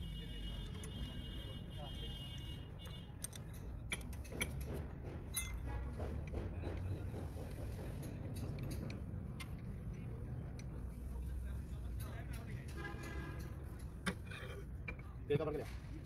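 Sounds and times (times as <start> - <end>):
metal parts clinking: 3.2 - 4.4.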